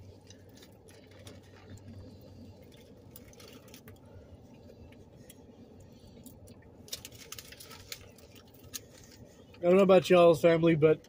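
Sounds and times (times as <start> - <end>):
foil rustling: 0.0 - 4.0, 6.8 - 9.4
low steady hum: 0.0 - 11.0.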